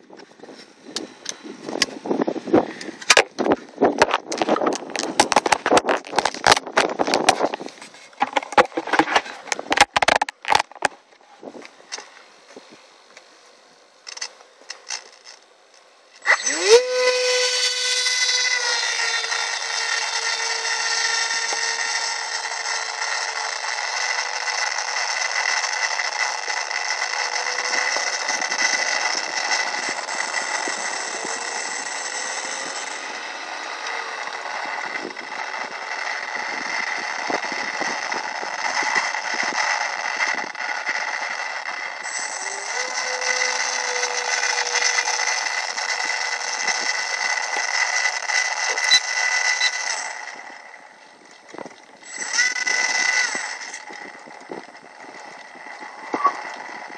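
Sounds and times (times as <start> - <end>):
electric motor and propeller whine: 0.0 - 56.9
gusty wind noise: 0.1 - 7.8.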